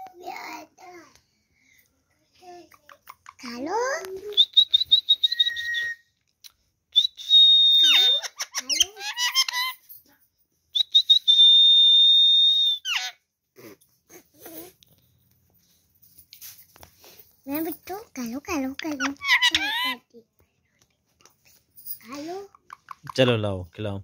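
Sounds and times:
parakeet whistling: 4.3 - 6.0, 7.0 - 9.8, 18.9 - 20.0
parakeet chattery calls: 7.8 - 9.8, 18.8 - 20.0.

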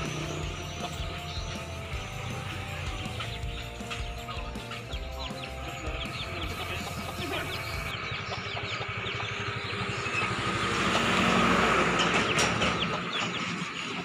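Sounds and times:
vehicle engine passing by: 0.0 - 3.4, 5.9 - 14.0.

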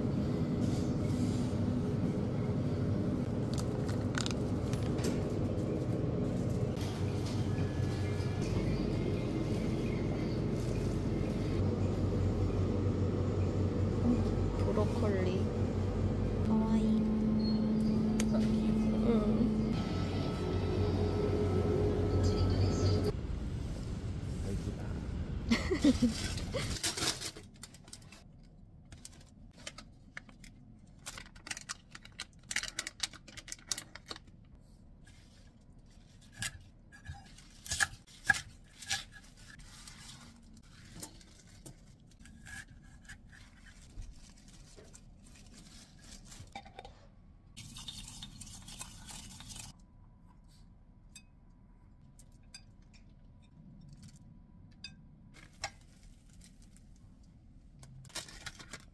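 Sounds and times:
outdoor traffic noise: 0.0 - 27.7
plastic rustling: 25.5 - 36.3, 37.2 - 46.6, 55.4 - 57.2, 57.8 - 58.9.

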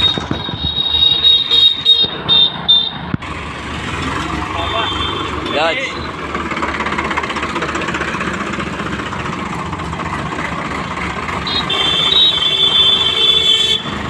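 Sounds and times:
diesel tractor engine running: 0.0 - 14.0.

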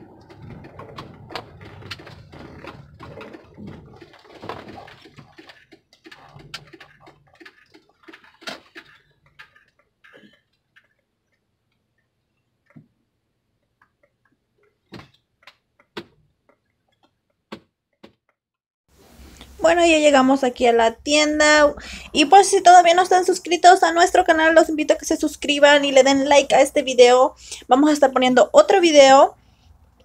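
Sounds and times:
small clicks and rattles: 0.0 - 13.0.

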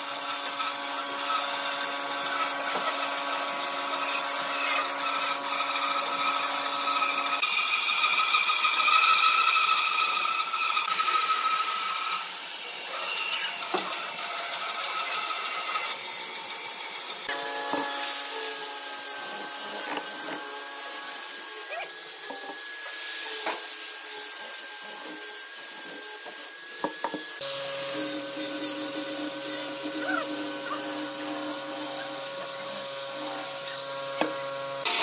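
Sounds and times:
band saw cutting wood: 0.0 - 35.0
angle grinder high whine: 2.2 - 14.2, 14.8 - 35.0
sanding drum rubbing wood: 22.2 - 34.9.

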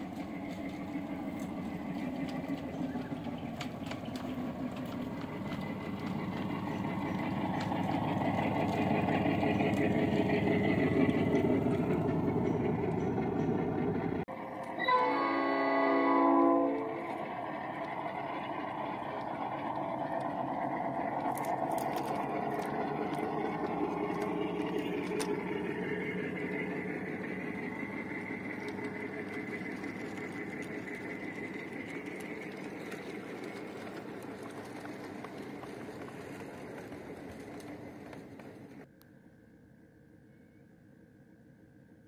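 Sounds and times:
train wheels on rails: 0.0 - 38.9
miniature train horn: 14.7 - 17.2.

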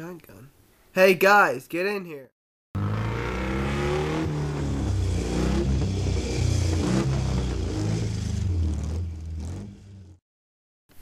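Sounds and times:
engine revving: 2.8 - 10.2.

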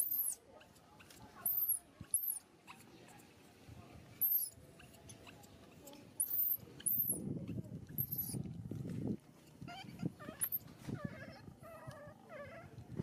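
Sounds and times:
baby monkey shrill squeals: 0.0 - 0.4, 1.4 - 2.4, 4.2 - 4.6, 6.2 - 7.2, 9.7 - 10.6
baby monkey whimpering: 9.7 - 12.7.

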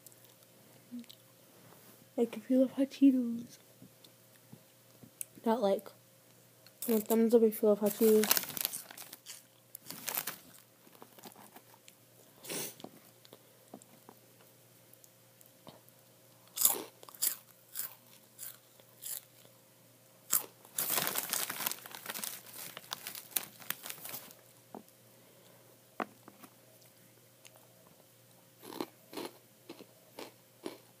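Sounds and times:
crunchy snack chewing: 8.3 - 11.4, 16.4 - 19.5, 20.3 - 24.3, 28.6 - 30.9.

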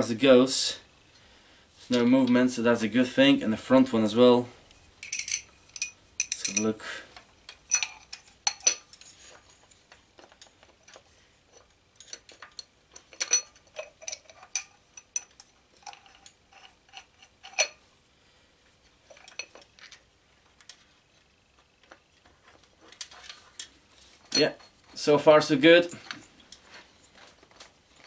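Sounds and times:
metal clinks and scrapes: 4.7 - 6.8, 7.4 - 17.9, 18.7 - 28.0.

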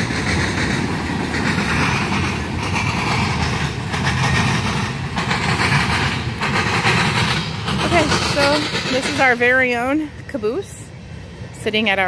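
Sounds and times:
sharp rail clacks: 0.0 - 9.4
train wheels rumbling on track: 0.0 - 12.0.

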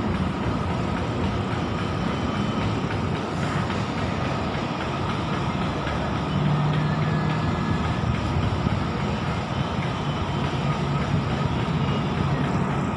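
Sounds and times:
diesel train rumbling past: 0.0 - 12.9
low engine hum: 0.0 - 12.9.

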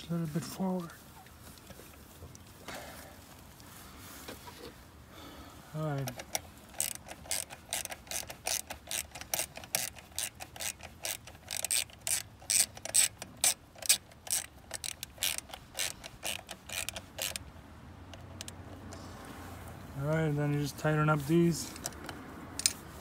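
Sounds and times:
socket ratchet clicking: 6.0 - 19.0, 21.7 - 22.8.

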